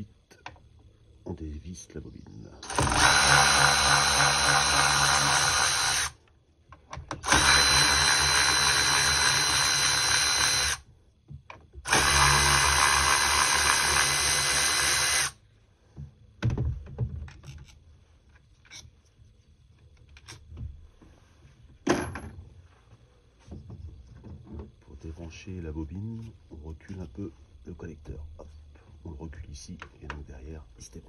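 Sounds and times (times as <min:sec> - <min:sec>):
electric ratchet whining: 0:02.6 - 0:06.2, 0:07.1 - 0:10.9, 0:11.8 - 0:15.4.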